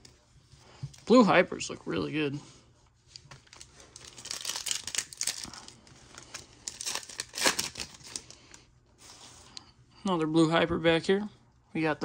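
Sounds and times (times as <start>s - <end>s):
foil wrapper tearing and crinkling: 3.4s - 8.4s.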